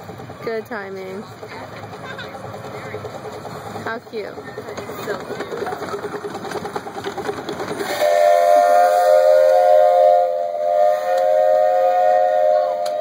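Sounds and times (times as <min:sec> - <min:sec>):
steam locomotive chugging: 0:00.0 - 0:13.0
chime steam whistle blast: 0:07.8 - 0:13.0.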